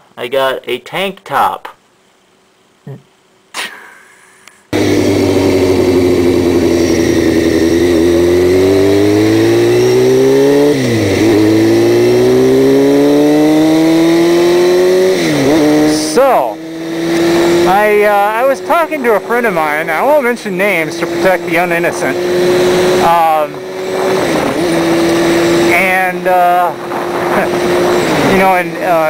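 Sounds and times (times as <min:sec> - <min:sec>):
motorcycle engine accelerating: 0:04.7 - 0:29.0
wind noise: 0:21.9 - 0:29.0.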